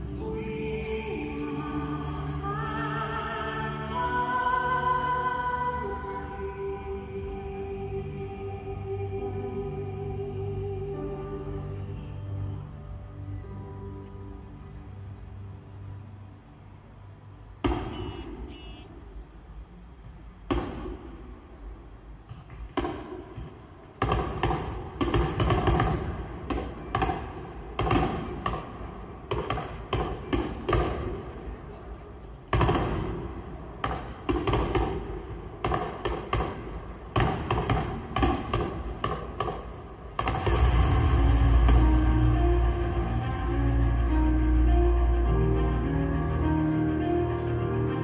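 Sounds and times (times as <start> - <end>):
fireworks booming bangs with echo: 32.5 - 33.2, 33.8 - 42.4.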